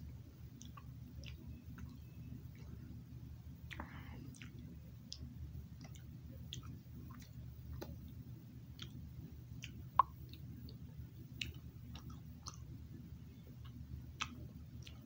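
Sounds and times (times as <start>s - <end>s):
low steady hum: 0.0s - 15.0s
wet chewing clicks: 0.5s - 2.9s, 3.6s - 12.8s, 13.4s - 15.0s.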